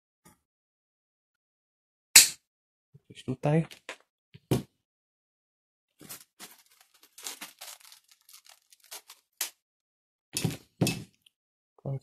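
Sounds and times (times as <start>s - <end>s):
hands rustling with bicycle parts: 6.0s - 9.6s.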